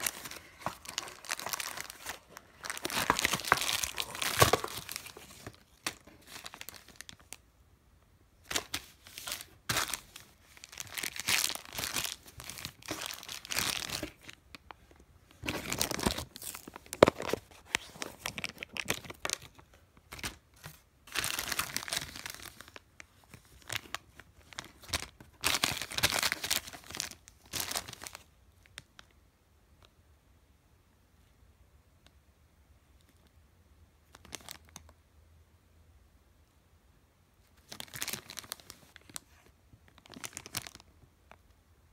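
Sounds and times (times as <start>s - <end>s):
plastic bags crinkling and tearing: 0.0s - 7.4s, 8.5s - 14.6s, 15.4s - 20.4s, 21.1s - 28.2s, 37.6s - 39.3s, 39.9s - 40.8s.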